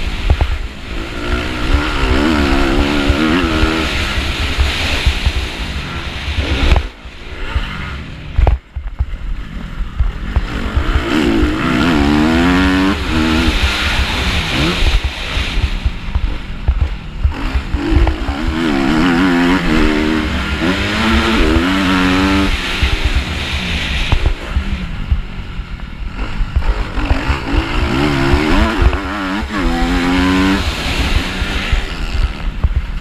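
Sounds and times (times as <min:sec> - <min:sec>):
dirt bike engine revving: 0:00.0 - 0:33.0
wind rumbling on microphone: 0:00.0 - 0:33.0.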